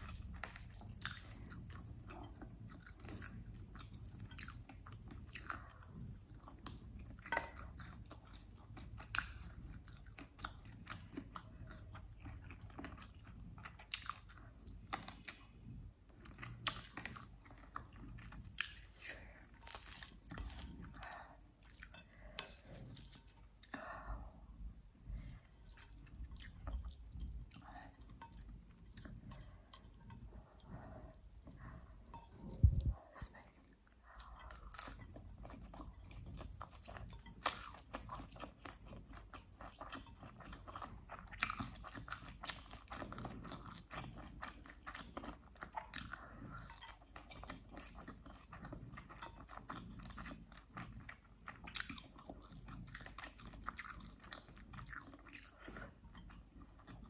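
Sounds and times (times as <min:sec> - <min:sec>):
wet crunchy chewing: 0:16.2 - 0:23.8, 0:24.8 - 0:57.0.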